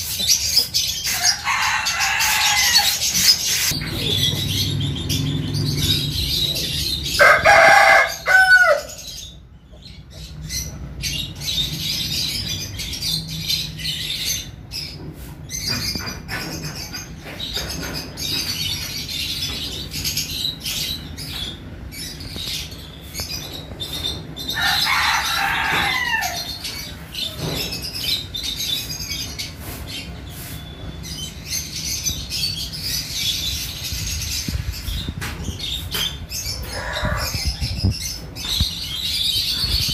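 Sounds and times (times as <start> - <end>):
small birds chirping: 0.0 - 7.4, 8.0 - 39.9
rooster crowing: 1.1 - 3.0, 7.1 - 9.0, 24.6 - 26.6.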